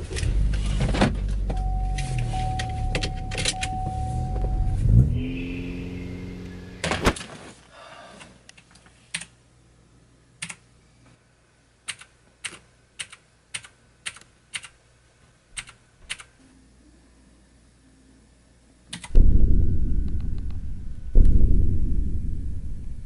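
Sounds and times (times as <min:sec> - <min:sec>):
computer mouse clicks: 0:15.6 - 0:16.3
loud knock: 0:19.2 - 0:23.0.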